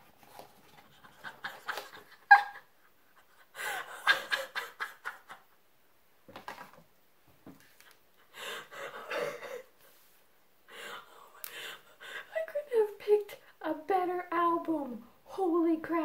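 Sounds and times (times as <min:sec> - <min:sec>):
woman laughing and gasping: 0:00.9 - 0:05.3, 0:08.2 - 0:09.7.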